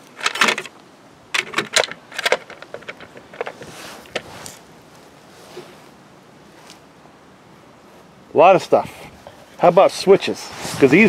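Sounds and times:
small hard parts clattering: 0.0s - 4.6s
soft rustle: 1.6s - 11.0s.

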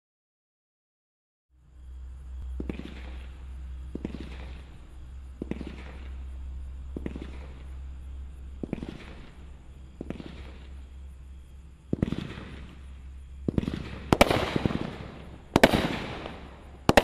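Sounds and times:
fireworks launch thumps: 2.4s - 4.8s, 5.4s - 6.3s, 6.9s - 7.7s, 8.6s - 10.8s, 11.9s - 17.0s.

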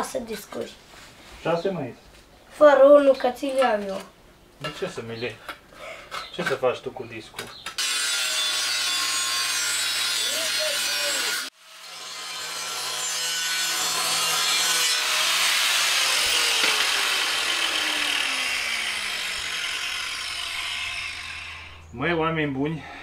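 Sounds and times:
angle grinder cutting steel: 7.8s - 21.8s.

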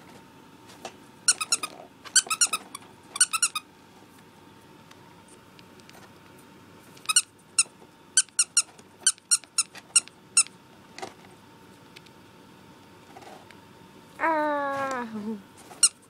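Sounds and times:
rat squeaking: 1.3s - 3.6s, 7.1s - 10.5s.

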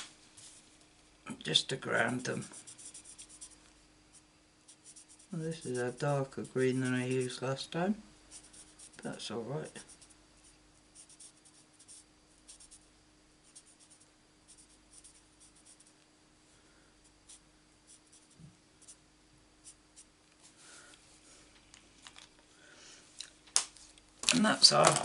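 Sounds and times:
faint steady hum: 0.0s - 25.0s
marker strokes on card: 2.0s - 7.4s, 8.3s - 16.0s, 17.0s - 19.0s.

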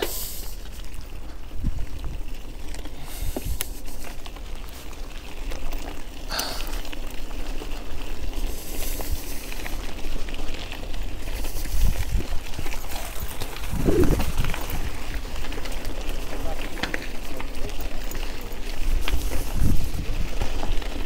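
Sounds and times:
bicycle clicks and rattles: 0.0s - 21.0s
wind on microphone: 11.4s - 15.0s, 18.9s - 20.6s.

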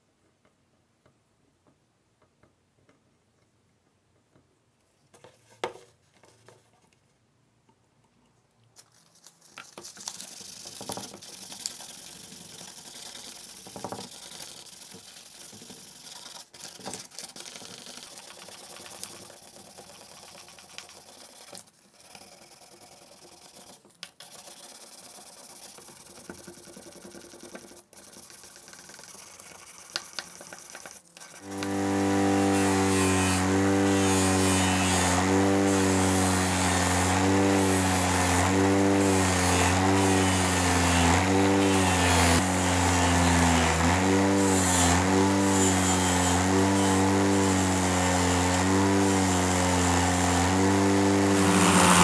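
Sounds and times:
sandpaper rubbing on plastic: 10.0s - 36.1s, 51.2s - 52.0s.

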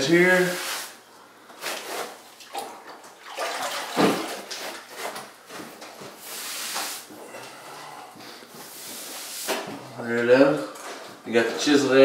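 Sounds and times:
sponge wiping over tile: 0.3s - 1.0s, 6.2s - 7.1s, 8.6s - 9.6s.

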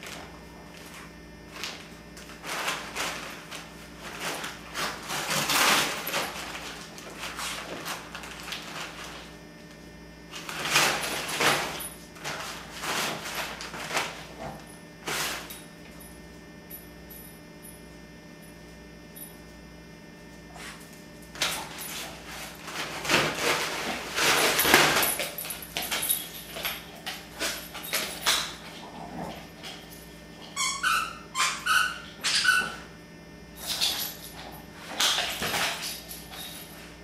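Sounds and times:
wrapping paper rustling: 0.0s - 9.4s, 21.6s - 28.7s
dog whining: 30.4s - 32.9s.

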